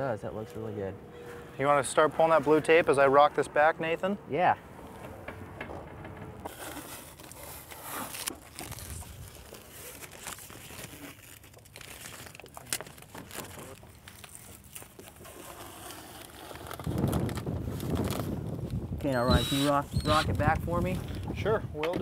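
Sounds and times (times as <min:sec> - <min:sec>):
tape peeling and crackling: 0:06.4 - 0:21.2.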